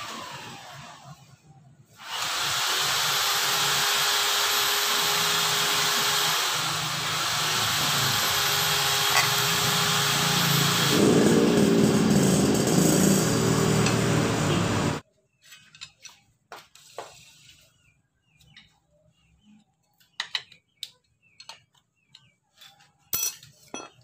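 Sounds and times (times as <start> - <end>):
loud steady noise: 2.1 - 15.0
small metal clicks and taps: 20.0 - 22.3.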